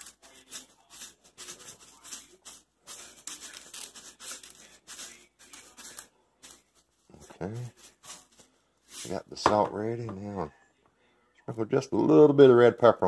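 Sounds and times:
salt rustling and tapping: 0:00.0 - 0:10.2.

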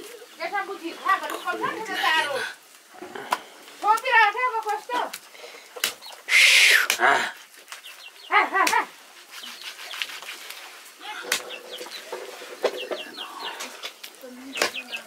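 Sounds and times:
loud hissing burst: 0:06.3 - 0:07.0.

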